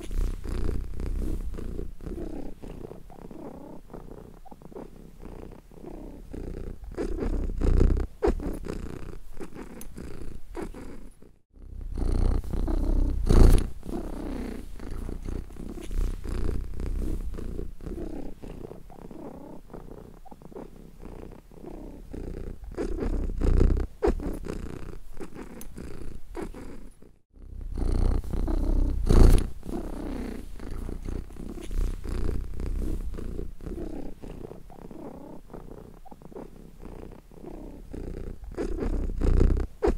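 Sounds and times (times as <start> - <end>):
cat purring: 0.0 - 39.9.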